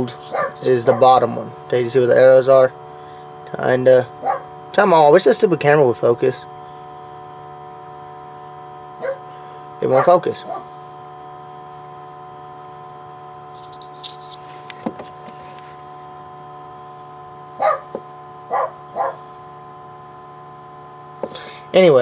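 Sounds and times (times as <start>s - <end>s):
electrical hum: 0.0s - 22.0s
dog barking: 0.3s - 1.1s, 4.2s - 4.5s, 9.0s - 9.2s, 9.9s - 10.7s, 17.6s - 19.2s.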